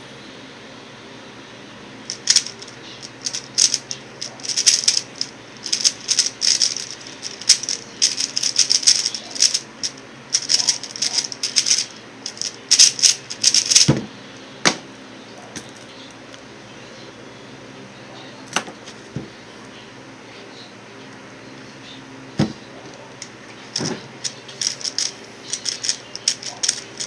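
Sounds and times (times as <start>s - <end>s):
plastic puzzle cube clicking: 2.1s - 9.6s, 10.4s - 13.9s, 24.2s - 27.0s.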